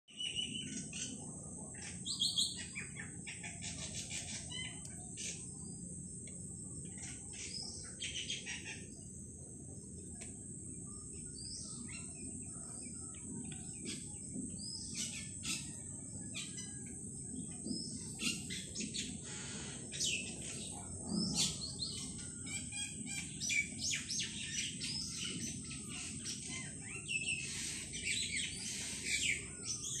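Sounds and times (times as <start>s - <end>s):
small birds chirping: 0.1s - 30.0s
low background hum: 0.2s - 30.0s.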